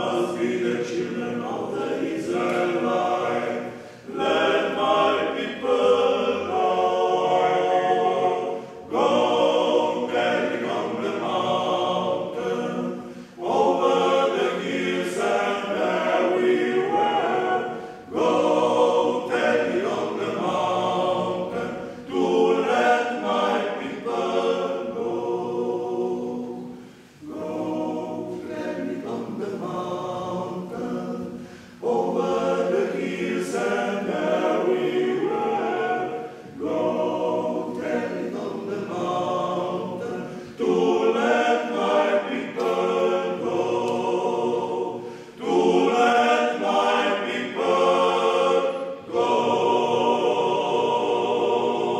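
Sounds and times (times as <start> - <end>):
male choir singing a cappella: 0.0 - 51.9.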